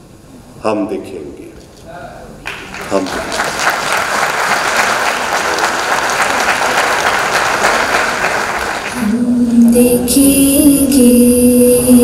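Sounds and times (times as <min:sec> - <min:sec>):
audience applauding: 0:02.4 - 0:09.1
person singing a long note: 0:08.9 - 0:12.0.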